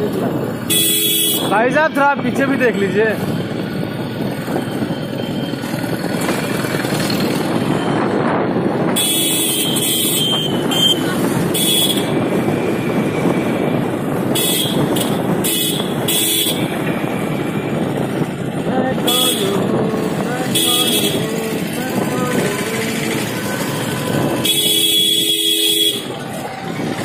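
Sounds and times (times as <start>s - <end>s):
wind and road noise: 0.0s - 27.0s
vehicle horns beeping: 0.6s - 3.0s, 8.9s - 17.8s, 18.9s - 26.9s
motorcycle engine: 2.2s - 27.0s.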